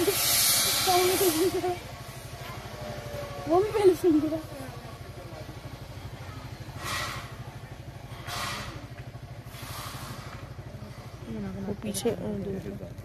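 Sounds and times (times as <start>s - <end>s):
hissing swells of noise: 0.0s - 2.3s
engine idling: 0.0s - 13.0s.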